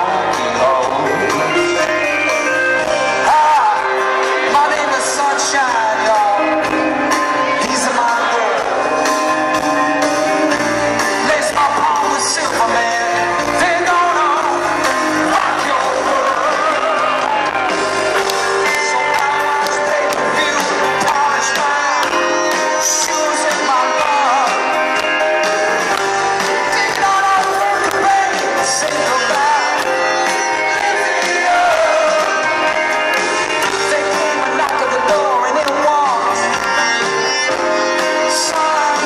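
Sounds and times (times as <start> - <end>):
live pop-rock band with male vocal: 0.0 - 39.0.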